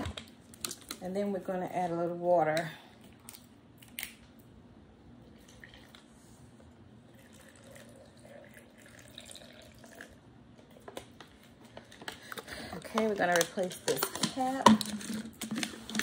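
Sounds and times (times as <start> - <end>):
water pouring into plastic cup: 5.3 - 6.1, 7.0 - 10.2.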